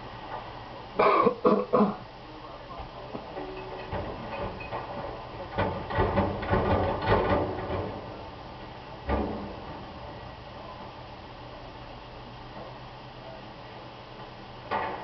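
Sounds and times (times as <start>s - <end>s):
garbage truck clattering and banging: 3.2s - 10.9s, 14.7s - 15.0s
thump: 9.1s - 9.8s.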